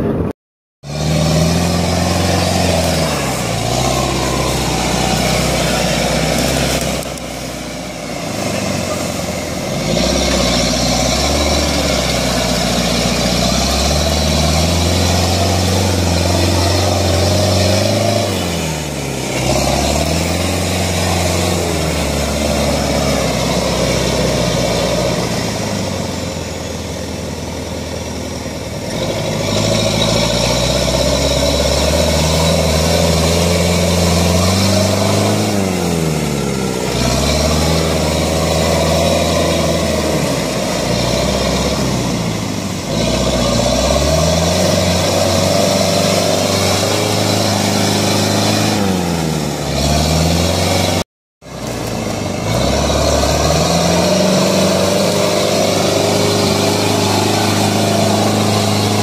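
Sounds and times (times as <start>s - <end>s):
off-road vehicle engine revving: 0.0s - 59.0s.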